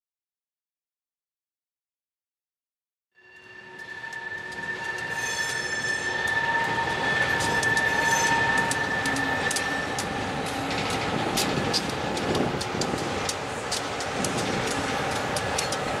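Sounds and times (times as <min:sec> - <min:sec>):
wheels squealing on rails: 0:03.2 - 0:16.0
wheels clanking over track: 0:04.2 - 0:16.0.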